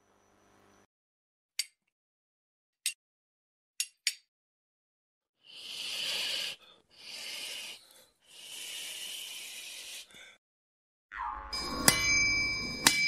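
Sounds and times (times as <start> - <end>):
hisses: 5.5 - 10.2.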